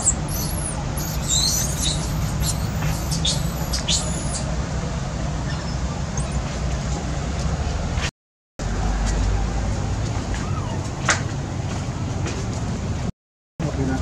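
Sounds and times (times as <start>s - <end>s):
baby monkey squealing: 0.0s - 4.5s, 5.4s - 6.6s, 10.4s - 10.8s.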